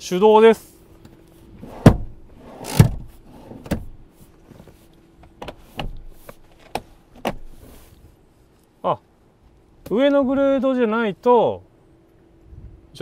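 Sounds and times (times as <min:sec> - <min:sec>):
seat sliding on rails: 0:01.5 - 0:08.0
car seat clicks and clunks: 0:01.8 - 0:07.6.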